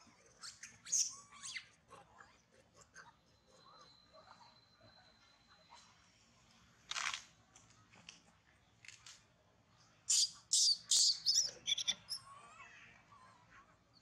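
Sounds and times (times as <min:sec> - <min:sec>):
macaques squealing: 0:10.1 - 0:12.2.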